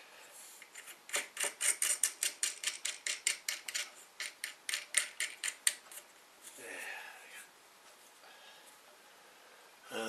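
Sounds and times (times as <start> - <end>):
nut spinning on bolt clicking: 0.6 - 5.9.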